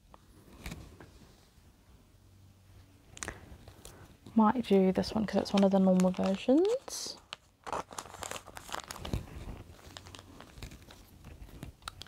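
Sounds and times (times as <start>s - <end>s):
plastic pages rustling: 4.6s - 12.0s.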